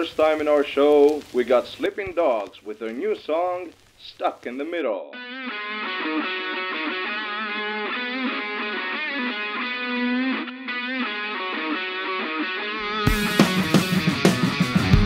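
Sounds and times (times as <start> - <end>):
distorted electric guitar: 0.0 - 15.0.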